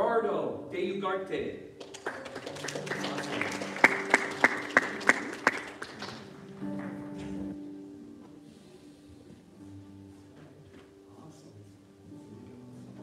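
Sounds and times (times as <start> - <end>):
loud single claps: 1.8 - 7.3
congregation applauding: 1.8 - 7.6
soft background music: 2.4 - 13.0.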